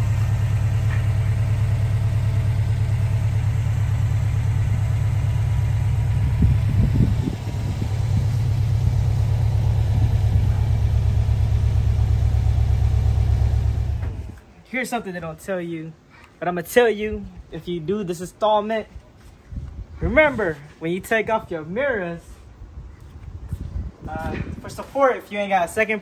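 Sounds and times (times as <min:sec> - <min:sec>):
car engine idling: 0:00.0 - 0:14.5.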